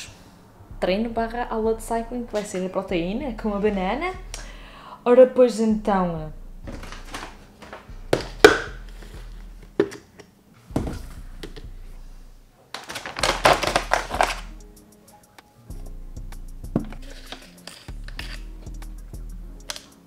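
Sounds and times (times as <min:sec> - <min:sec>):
plastic tubs clattering: 0:06.7 - 0:08.7, 0:12.7 - 0:14.5
containers knocking on countertop: 0:08.1 - 0:08.8, 0:09.8 - 0:10.0.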